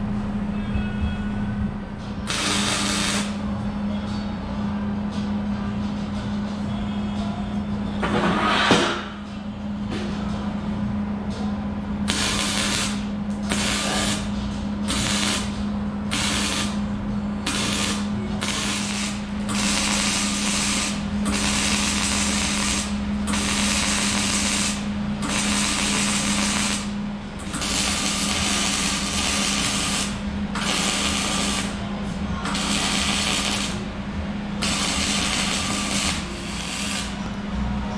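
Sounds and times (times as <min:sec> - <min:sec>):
arc welding crackling hiss: 0:02.3 - 0:03.4, 0:12.1 - 0:14.3, 0:14.9 - 0:15.5, 0:16.1 - 0:16.8, 0:17.5 - 0:31.8, 0:32.5 - 0:33.8, 0:34.6 - 0:37.3.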